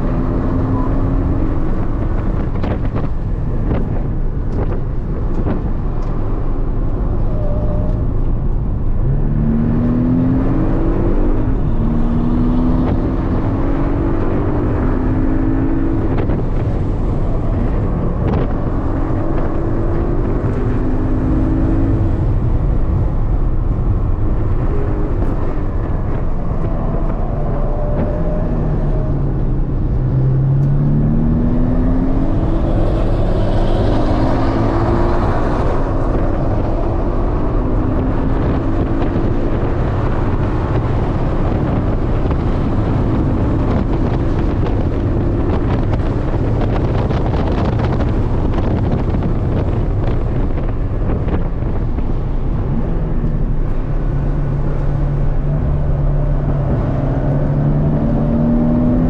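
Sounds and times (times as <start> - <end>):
car engine revving: 0.0 - 59.0
tyre road and wind noise: 0.0 - 59.0.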